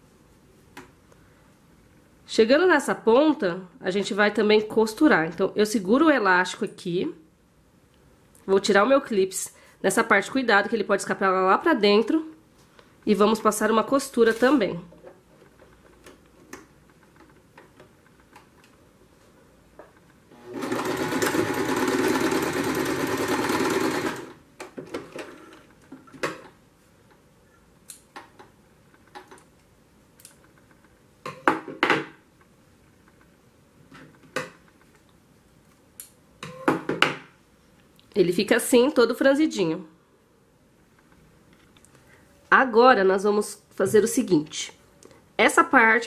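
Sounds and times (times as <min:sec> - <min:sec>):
electric sewing machine stitching: 0:20.3 - 0:24.4.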